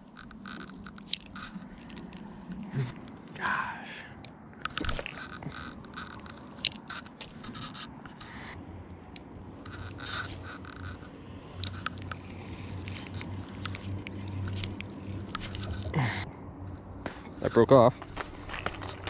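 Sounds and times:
low hum: 0.0 - 17.4
clicks and scrapes of hands: 9.6 - 15.9.

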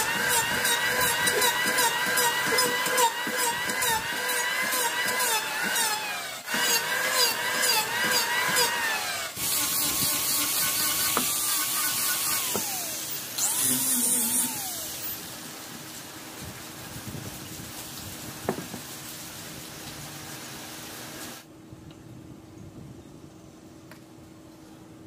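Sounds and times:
power tool whining through wood: 0.0 - 15.3.

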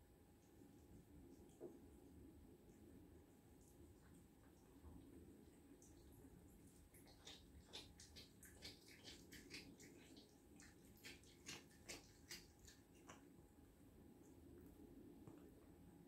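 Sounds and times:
cat chewing wet smacks: 5.9 - 13.3.

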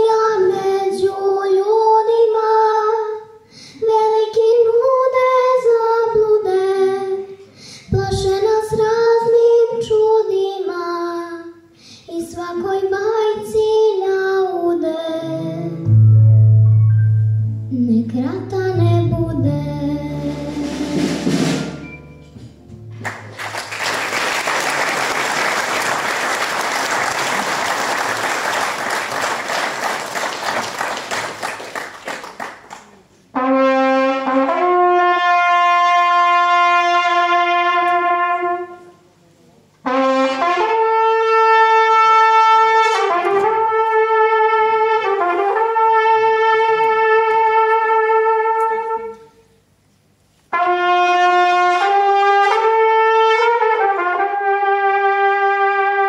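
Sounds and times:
applause: 23.0 - 33.2
solo trumpet long notes: 33.3 - 39.0, 39.8 - 49.5, 50.5 - 56.0.

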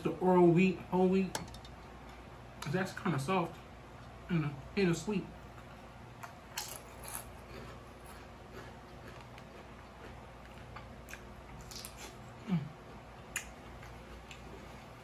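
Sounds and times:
chewing crisp cucumber: 5.6 - 12.4.

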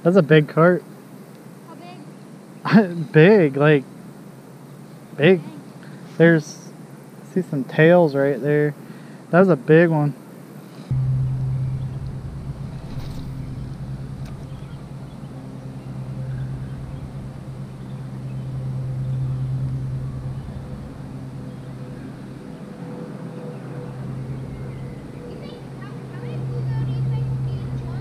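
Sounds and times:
low engine drone: 10.9 - 28.0.

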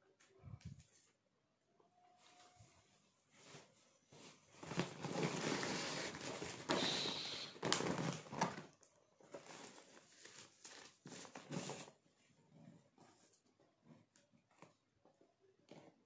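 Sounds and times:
cardboard and tissue paper rustling: 2.1 - 13.4
paper bag rustling and crinkling: 3.3 - 12.0.

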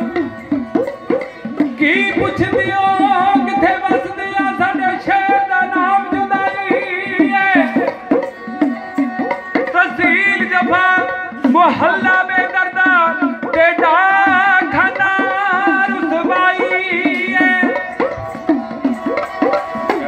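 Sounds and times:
sarangi bowing a melody: 0.0 - 20.0
hourglass drums with pitch bends: 14.2 - 20.0.

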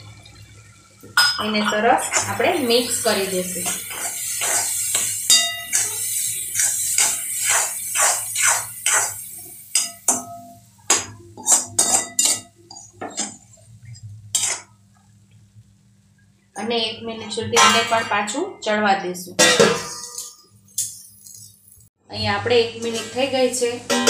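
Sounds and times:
metal spoon scraping metal pan: 1.6 - 10.3, 10.9 - 13.4, 14.3 - 14.7, 19.6 - 21.8.

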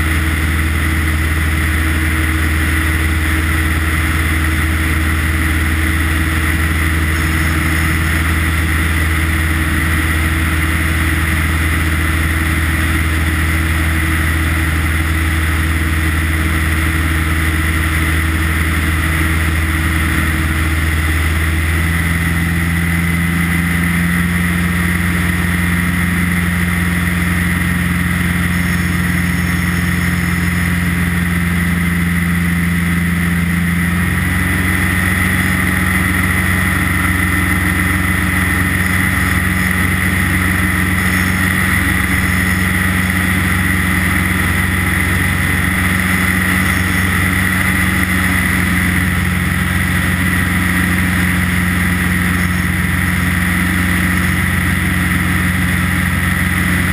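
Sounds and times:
light aircraft engine drone: 0.0 - 56.9.

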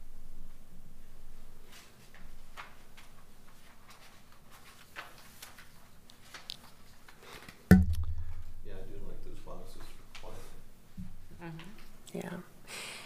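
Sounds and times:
low room hum: 0.0 - 13.0
papers rustling: 1.8 - 7.6.

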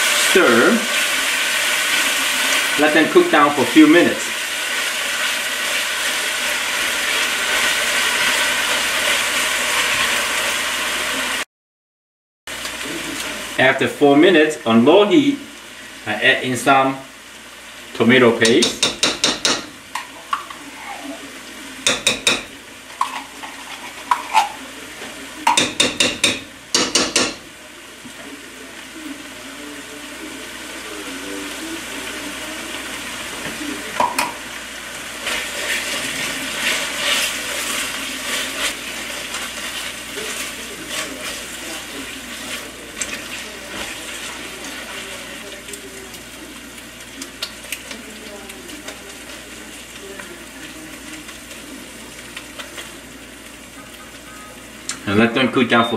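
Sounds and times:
oil gently sizzling: 0.0 - 11.4, 12.5 - 55.9
spatula stirring in pan: 21.8 - 27.4, 33.3 - 53.0.

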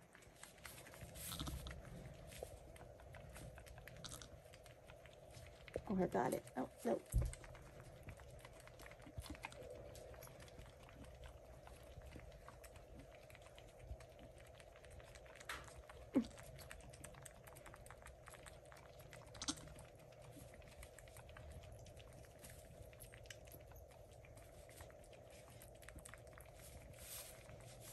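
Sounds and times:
faint steady hum: 0.0 - 27.9
rustling of straw bedding: 0.4 - 2.6, 26.5 - 27.9.

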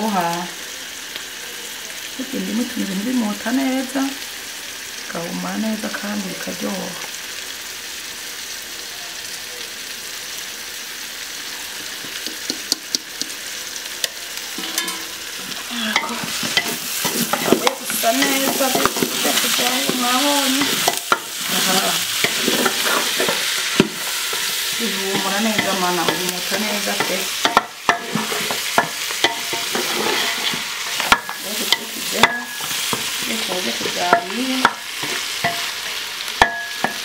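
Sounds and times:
onions and meat sizzling in pot: 0.0 - 37.0
wooden spoon scraping a pot: 14.6 - 36.1.

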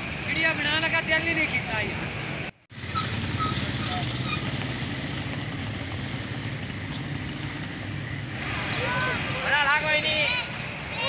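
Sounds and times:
vehicle engine running: 2.8 - 8.4.

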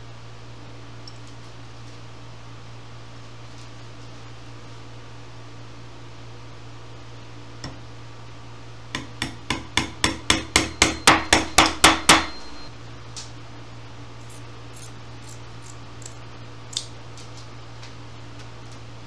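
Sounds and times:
tack hammer striking tacks: 9.0 - 12.4.

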